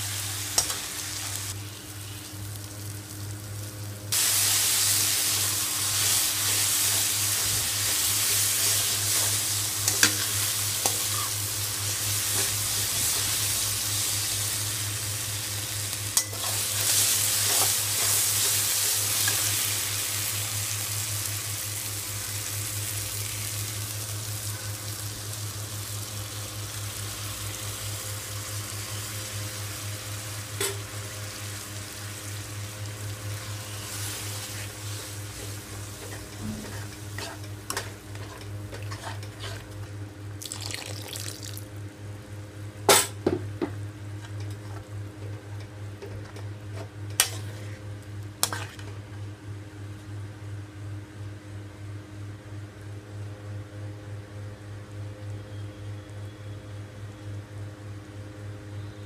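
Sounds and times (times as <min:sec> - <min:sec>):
low steady hum: 0:00.0 - 0:59.0
liquid hissing in hot pan: 0:04.1 - 0:24.3, 0:31.4 - 0:37.6, 0:40.4 - 0:41.7.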